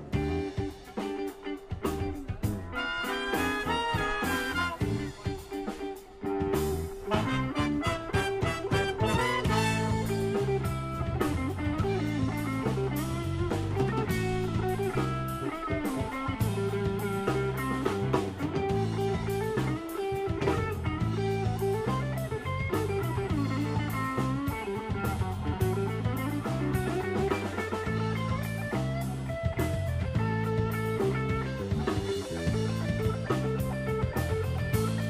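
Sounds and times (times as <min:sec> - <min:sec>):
drum kit: 0:00.0 - 0:35.0
electric bass: 0:00.0 - 0:35.0
electric guitar: 0:00.0 - 0:35.0
horn section playing: 0:02.7 - 0:05.2, 0:07.0 - 0:10.7.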